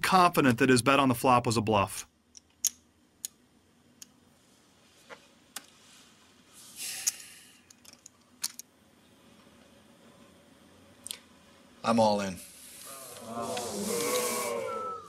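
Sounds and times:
soft rush of noise: 9.1 - 15.0.

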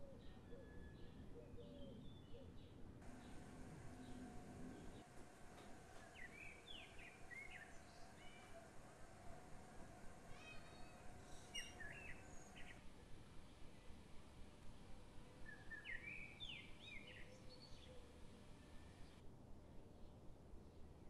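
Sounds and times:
small birds chirping: 3.0 - 12.8
low steady hum: 3.0 - 21.0.

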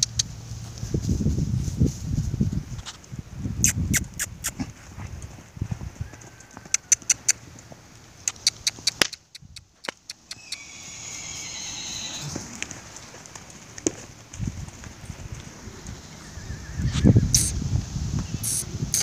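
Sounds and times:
horse hoofbeats on dirt: 4.0 - 15.9.

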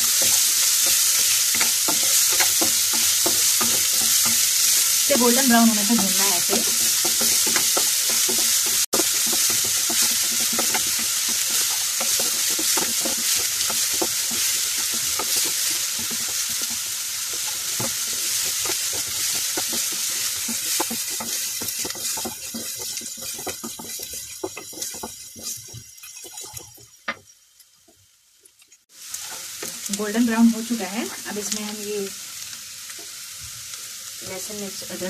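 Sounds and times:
wooden spatula scraping a pan: 0.0 - 27.2
onions sizzling in oil: 0.0 - 35.0.

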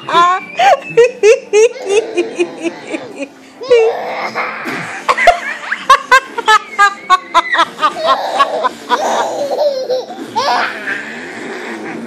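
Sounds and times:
baby laughing: 0.0 - 12.0.

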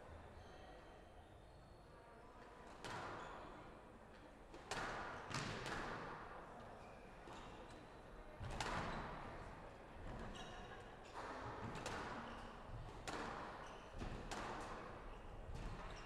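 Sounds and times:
squash ball hitting rackets and walls: 13.0 - 14.9.

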